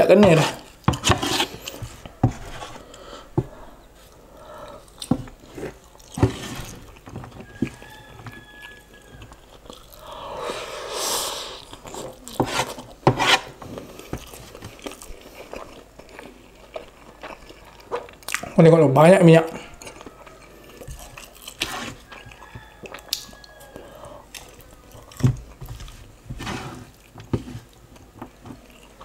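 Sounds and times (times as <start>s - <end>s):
chewing: 2.8s - 10.2s, 11.6s - 13.0s, 13.6s - 18.6s, 19.5s - 26.1s, 26.8s - 29.0s.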